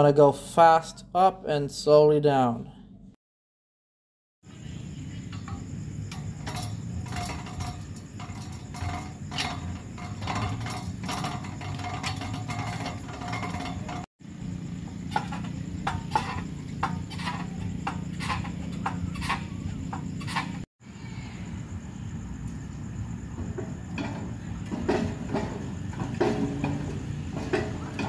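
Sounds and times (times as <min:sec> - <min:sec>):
steady low hum: 0:04.5 - 0:28.0
gym machine metal clicks: 0:05.3 - 0:14.1.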